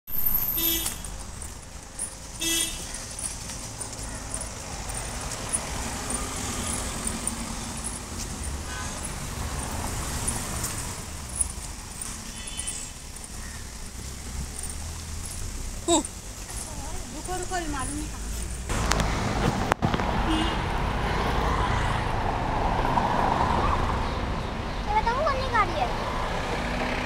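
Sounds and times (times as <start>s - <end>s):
passing cars hum: 0.1s - 27.0s
vehicle horn toots: 0.5s - 1.2s, 2.4s - 2.9s, 8.5s - 10.4s, 12.2s - 13.0s, 20.3s - 20.6s.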